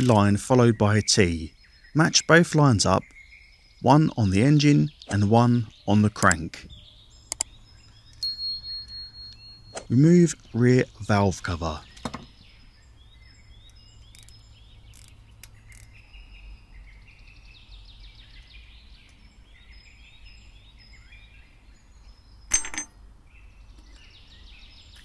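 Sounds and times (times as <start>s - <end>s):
small birds chirping: 0.0s - 25.0s
sharp metallic clink: 8.2s - 9.9s, 22.5s - 23.0s.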